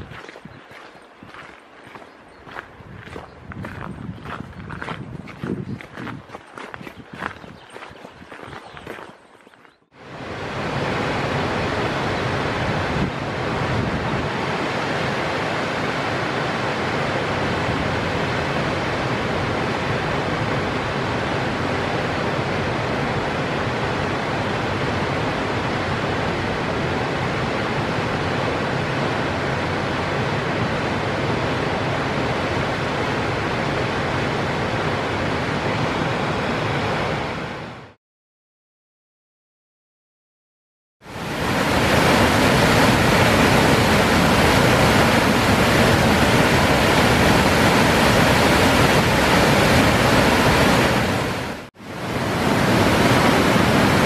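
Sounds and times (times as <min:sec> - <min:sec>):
waterfall rushing: 0:10.0 - 0:37.5, 0:41.1 - 0:54.0.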